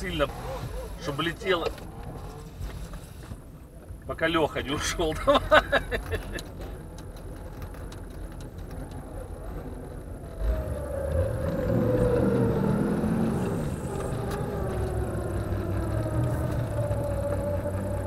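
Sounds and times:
off-road vehicle engine revving: 0.0s - 3.0s, 8.6s - 18.0s
wheels spinning in mud: 5.6s - 18.0s.

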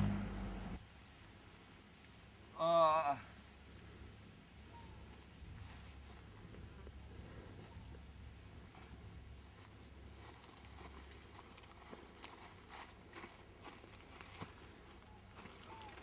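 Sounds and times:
footsteps on grass: 0.0s - 2.6s, 3.2s - 16.0s
low steady hum: 0.0s - 2.6s.

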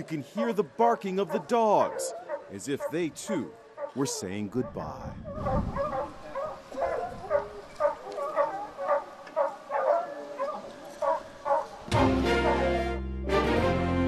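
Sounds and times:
dogs barking: 0.9s - 12.8s
theme music: 11.9s - 14.0s.

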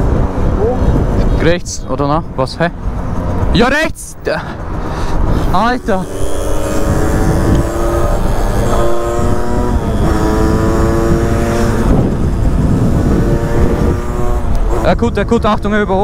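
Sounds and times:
wind on microphone: 0.0s - 1.6s, 5.1s - 16.0s
motorcycle engine accelerating: 4.6s - 16.0s.

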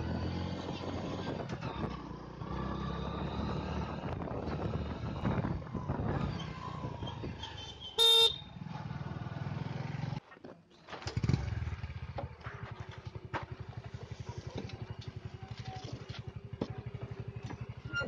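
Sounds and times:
motorcycle riding noise: 0.0s - 18.0s
motorcycle engine idling: 11.1s - 18.0s.

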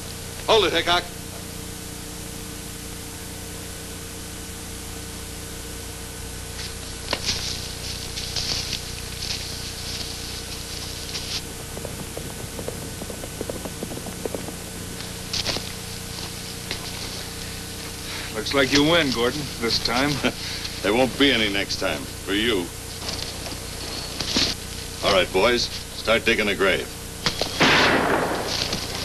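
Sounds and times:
hiss and faint hum: 0.0s - 29.0s
rustling scrapes: 6.6s - 21.0s, 22.9s - 26.0s.

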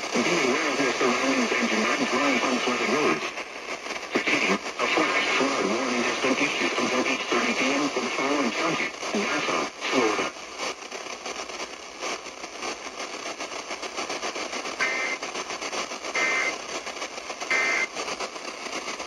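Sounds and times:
radio static hiss: 0.0s - 19.0s
broadcast voice: 0.1s - 3.4s, 4.1s - 10.3s.

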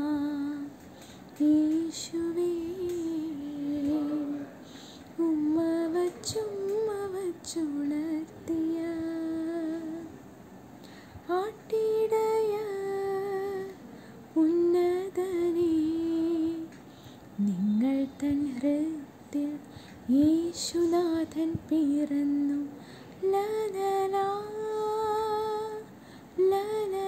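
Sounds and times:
woman singing solo: 1.4s - 10.2s.

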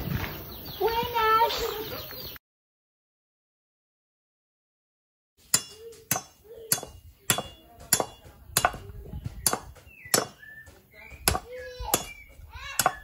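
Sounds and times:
machete chopping coconut husk: 5.4s - 13.0s.

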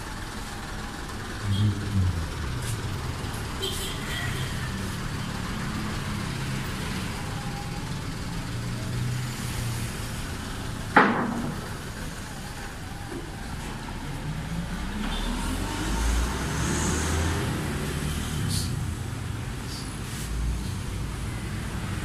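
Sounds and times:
diesel truck engine running: 0.0s - 15.2s.

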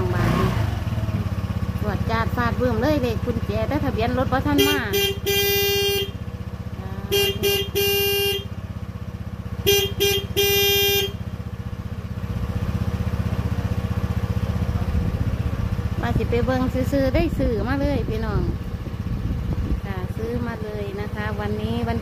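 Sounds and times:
motor scooter engine idling: 0.0s - 22.0s
scooter horn beeps: 4.4s - 11.7s.

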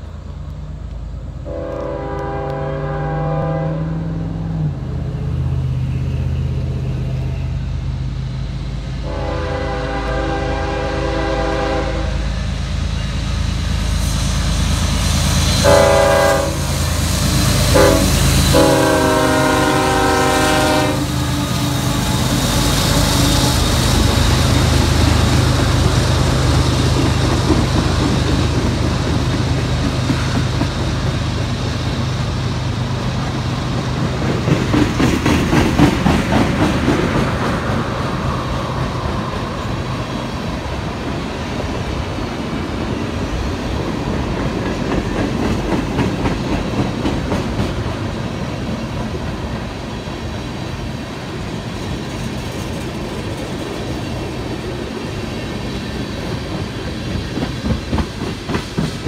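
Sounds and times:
grade crossing signal: 0.0s - 35.0s
diesel locomotive rumble: 0.0s - 59.0s
train air horn blasts: 1.4s - 4.3s, 9.0s - 12.3s, 15.6s - 23.7s.

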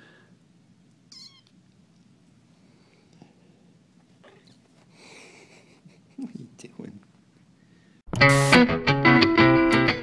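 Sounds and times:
distorted electric guitar music: 8.1s - 10.0s.

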